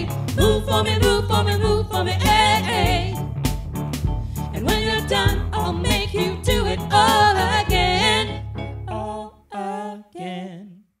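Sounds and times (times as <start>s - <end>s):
voices singing together: 0.0s - 3.2s, 4.6s - 10.8s
drums and bass backing: 0.0s - 8.3s.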